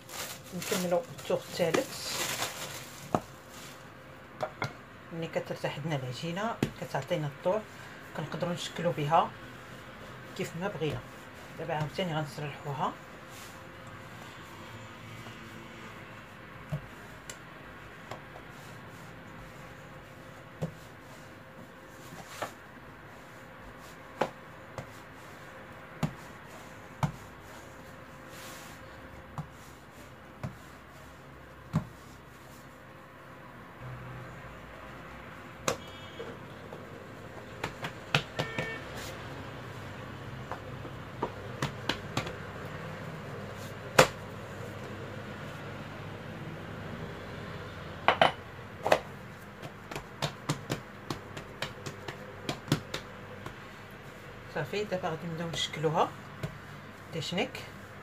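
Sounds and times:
rolling pin rolling dough: 8.3s - 32.9s, 34.8s - 46.3s, 48.8s - 57.1s
rolling pin tapping dough: 26.0s - 26.3s, 27.0s - 27.3s, 36.8s - 38.8s, 40.4s - 42.5s, 48.8s - 53.6s
sharp knocks on stone worktop: 48.1s - 49.0s.

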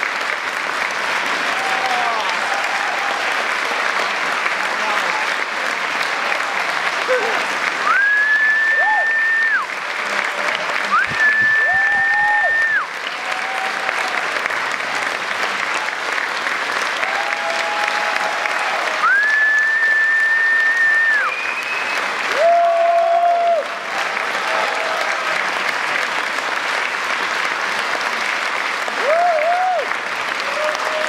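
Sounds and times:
audience applauding: 0.0s - 31.0s
whoops and whistles: 19.0s - 22.5s.

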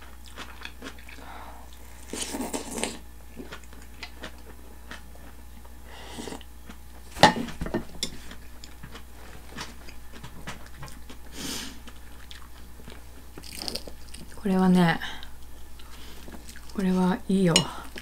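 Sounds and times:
chewing with mouth clicks: 0.0s - 7.0s, 8.2s - 14.4s, 15.2s - 16.8s.

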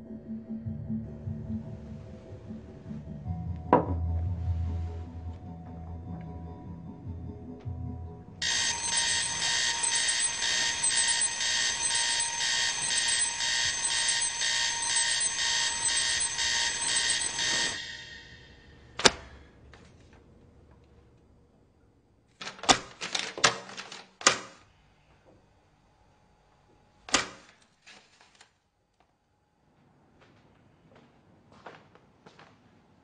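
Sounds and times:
alarm clock ringing: 8.4s - 18.9s.

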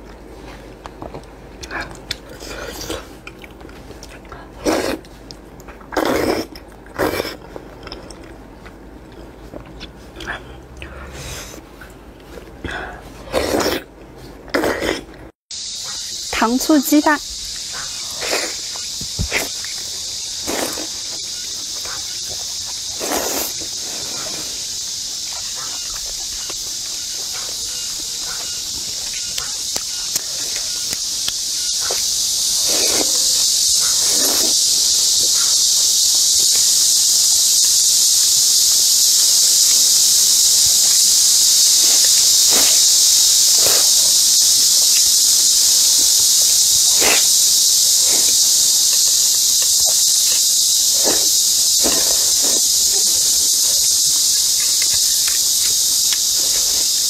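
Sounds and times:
person chewing and slurping food: 0.0s - 15.3s, 17.4s - 35.0s, 35.6s - 57.0s
insect chorus buzzing: 14.6s - 57.0s.

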